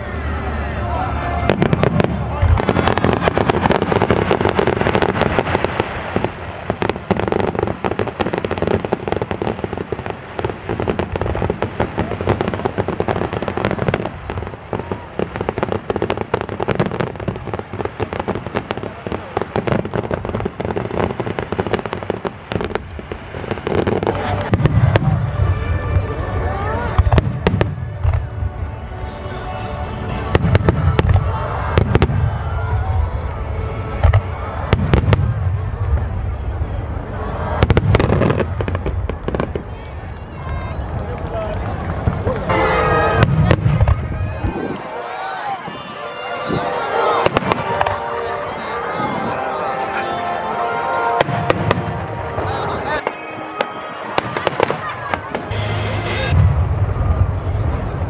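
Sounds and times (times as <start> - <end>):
continuous low rumble: 0.0 - 8.2, 17.0 - 45.7, 54.6 - 58.0
fireworks cracking and popping: 1.2 - 29.2, 30.0 - 49.6, 51.1 - 58.0.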